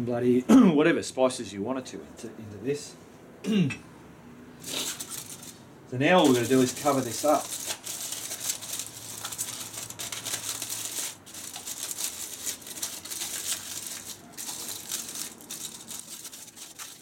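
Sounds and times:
aluminium foil crinkling: 4.6 - 5.6, 6.2 - 17.0.

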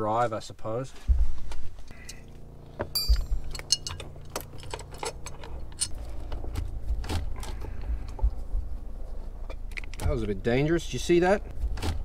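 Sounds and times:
low rumble: 1.0 - 11.8
bright metallic ring: 2.9 - 4.0
metal clicks and clinks: 2.9 - 6.0.

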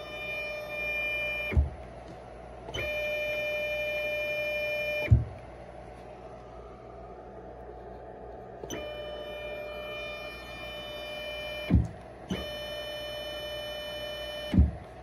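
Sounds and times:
low thump of motors stopping: 1.4 - 1.9, 5.0 - 5.5, 11.6 - 12.5, 14.5 - 14.9.

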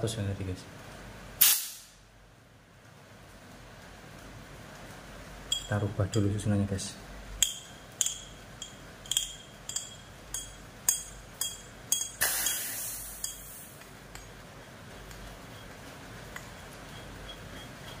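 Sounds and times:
sharp metallic clinks: 5.5 - 6.3, 7.4 - 14.3
compressed air hissing: 12.2 - 13.8.

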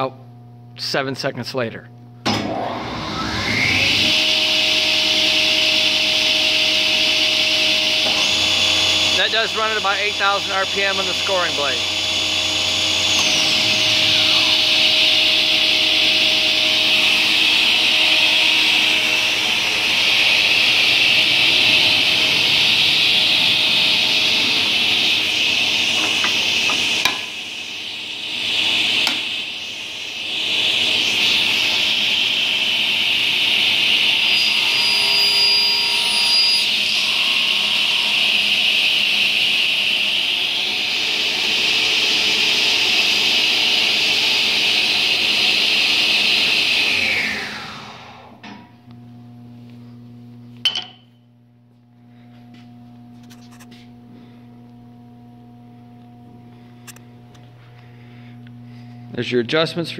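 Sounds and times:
table saw whirring: 2.3 - 48.7.

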